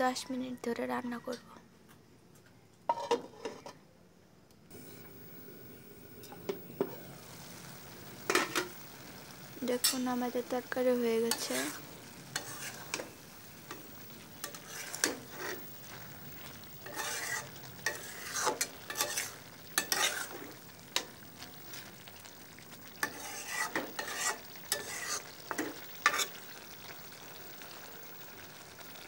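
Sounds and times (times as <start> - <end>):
curry sizzling faintly: 4.7 - 29.0
spatula scraping a metal pan: 11.2 - 13.8, 14.4 - 15.7, 16.8 - 21.1, 23.0 - 26.4.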